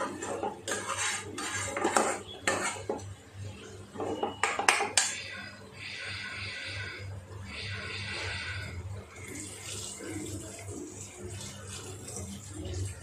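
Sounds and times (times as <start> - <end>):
spatula scraping a pan: 0.0 - 3.0, 7.7 - 8.8.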